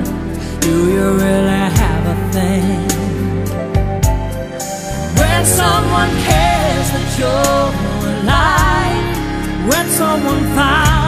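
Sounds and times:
slow ballad music: 0:00.0 - 0:11.0.

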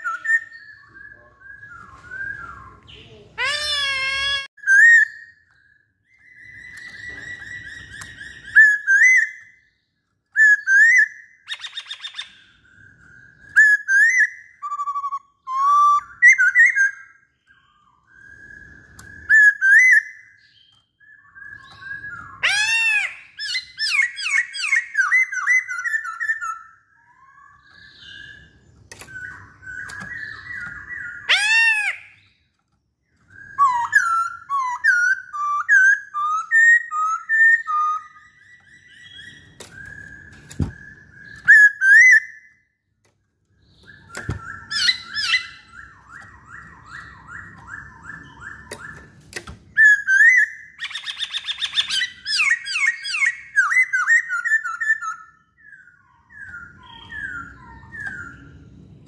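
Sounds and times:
bird singing whistled phrases: 0:00.0 - 0:32.4, 0:33.1 - 0:42.7, 0:43.6 - 0:58.8.

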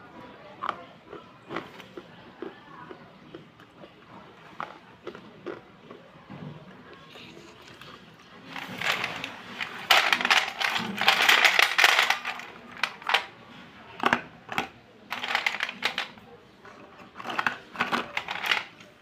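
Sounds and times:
slate pencils clattering on metal: 0:08.4 - 0:13.3, 0:14.0 - 0:19.0.

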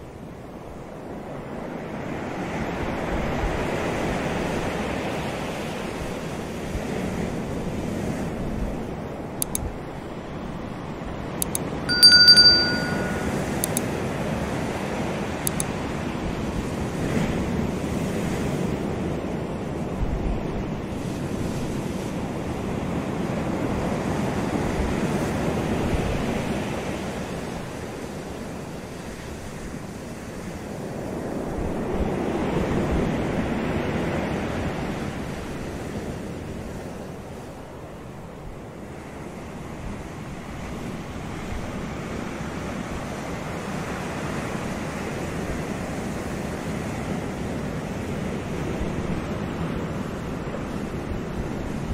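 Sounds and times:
short bell ding: 0:11.9 - 0:13.8.

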